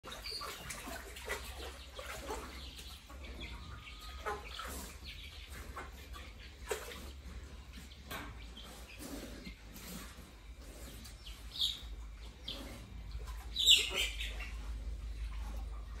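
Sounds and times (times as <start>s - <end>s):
water splashes: 0.0s - 2.7s
pig rooting and slurping in water: 0.0s - 16.0s
pig snuffling: 0.1s - 16.0s
bird calls: 10.4s - 15.5s.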